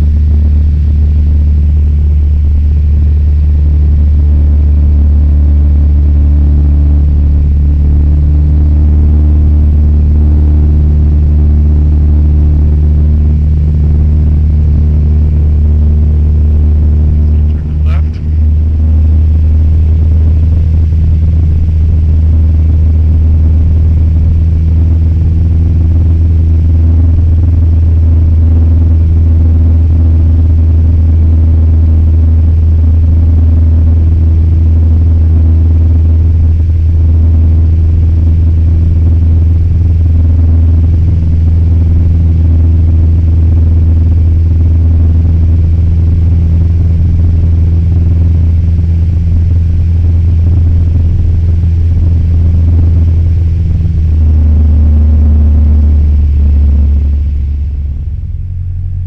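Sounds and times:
airplane engine drone in cockpit: 0.0 - 59.0.

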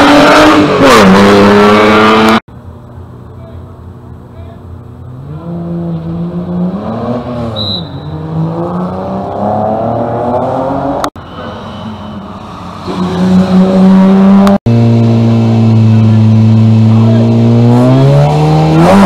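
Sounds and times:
rally car engine revving: 0.0 - 2.4, 5.0 - 11.1, 12.6 - 19.0
car approaching: 0.0 - 19.0
car engine idling: 2.5 - 5.3.

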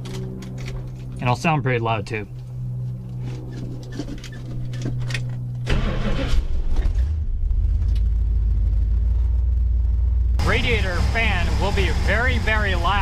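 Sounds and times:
car engine idling: 2.1 - 13.0
engine starter cranking: 5.6 - 7.2.

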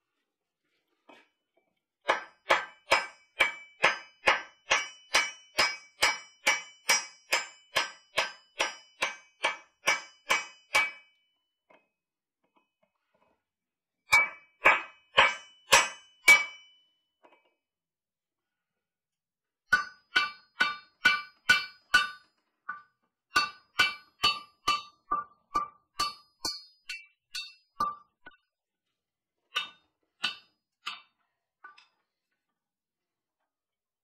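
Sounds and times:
hammer striking steel: 2.1 - 11.1, 14.1 - 16.8, 19.7 - 28.4, 29.6 - 31.1.

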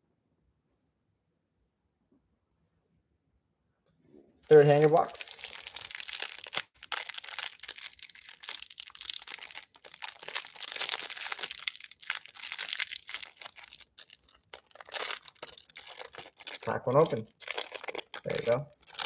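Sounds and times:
plastic wrapper crinkling and tearing: 4.5 - 19.0.

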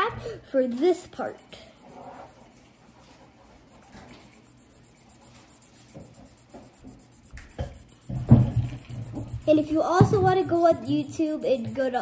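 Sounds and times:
marker scratching on paper: 0.0 - 12.0
loud thump: 7.6 - 10.4.

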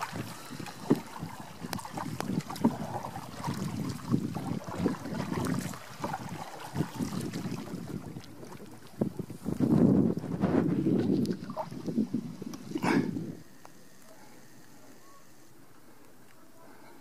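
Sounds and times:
wind on microphone: 0.0 - 13.5
water lapping against canoe: 0.0 - 17.0.

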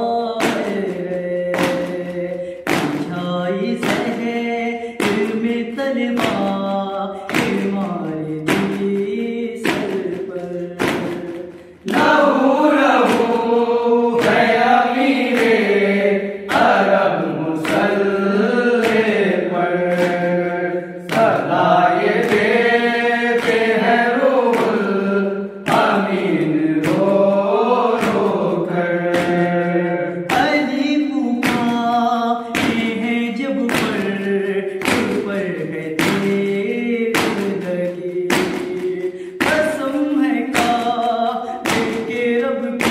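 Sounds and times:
hand strikes: 0.0 - 42.9
men chanting in unison: 11.5 - 36.7.

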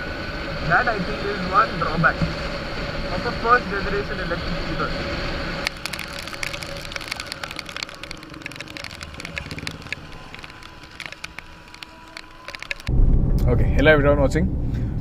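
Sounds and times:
wind and tyre hiss: 0.0 - 13.0
raindrops ticking on camera: 5.5 - 12.9.

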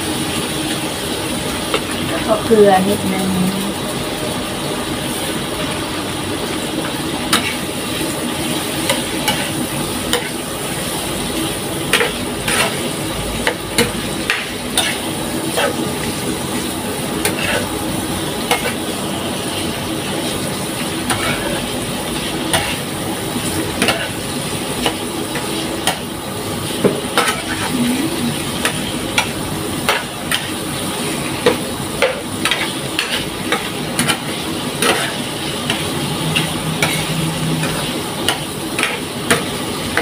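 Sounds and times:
shrimp sizzling in a pan: 0.0 - 40.0
spatula scraping a pan: 11.9 - 15.9, 17.2 - 17.8, 21.0 - 22.9, 27.1 - 28.0, 28.6 - 40.0.

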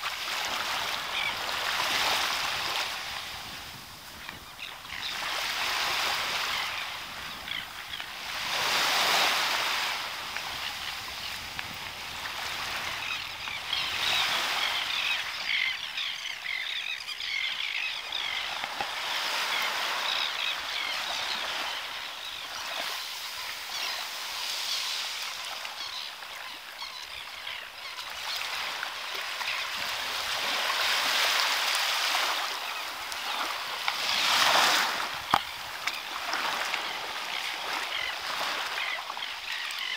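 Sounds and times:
waves washing on sandy beach: 0.0 - 16.1, 28.0 - 39.9.

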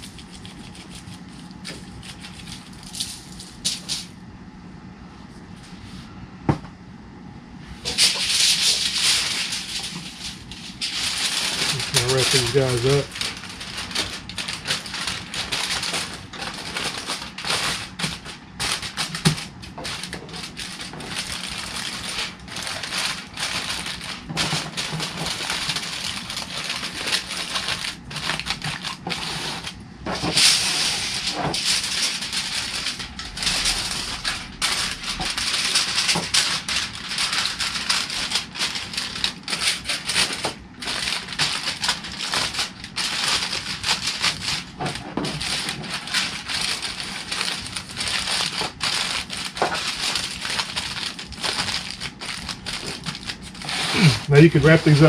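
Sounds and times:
aluminum foil crinkling: 0.0 - 4.1, 7.8 - 55.0.

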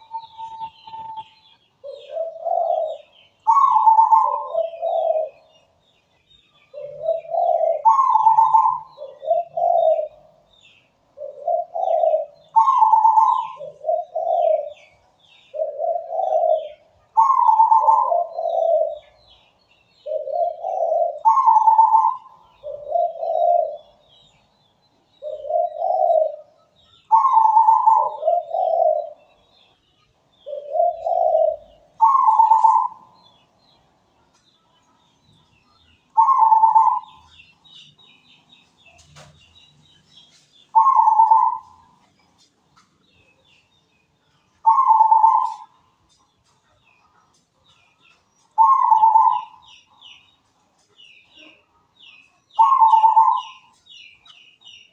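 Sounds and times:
dove cooing song: 0.0 - 34.1, 35.1 - 42.5, 44.2 - 54.9
small birds chirping: 0.0 - 54.9.

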